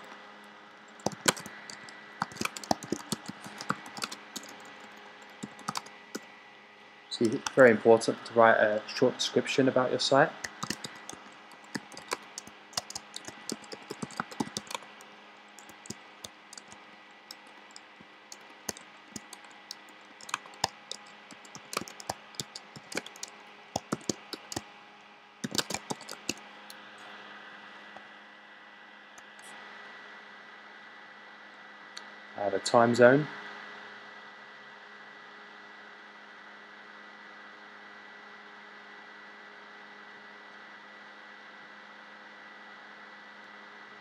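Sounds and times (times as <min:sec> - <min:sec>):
faint steady hum: 0:00.0 - 0:44.0
typing on computer keyboard: 0:01.0 - 0:06.2, 0:07.2 - 0:07.6, 0:10.4 - 0:24.6, 0:25.4 - 0:26.4.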